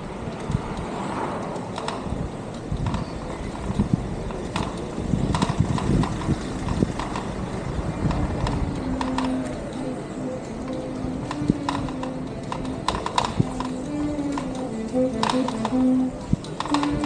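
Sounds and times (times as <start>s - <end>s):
wind rumbling on microphone: 0.0s - 17.0s
clicks and knocks: 0.3s - 17.0s
steady low tone: 7.2s - 17.0s.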